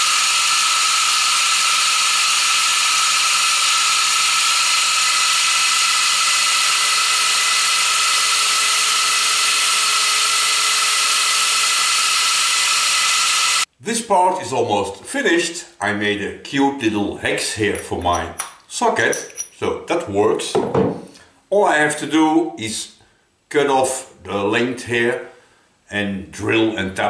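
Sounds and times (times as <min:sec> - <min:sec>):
milling machine running: 0:00.0 - 0:13.7.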